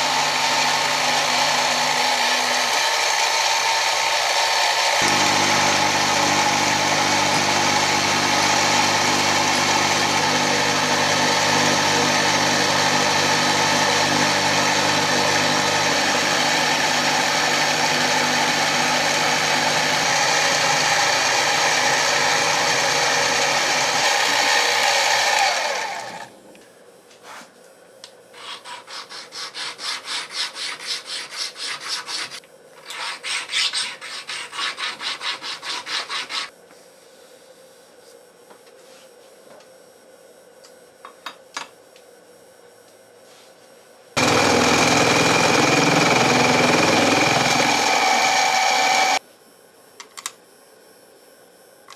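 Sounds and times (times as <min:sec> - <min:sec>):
mill cutting metal: 0:00.0 - 0:26.3, 0:44.2 - 0:49.2
sharpening stone rasping on metal: 0:28.4 - 0:36.5.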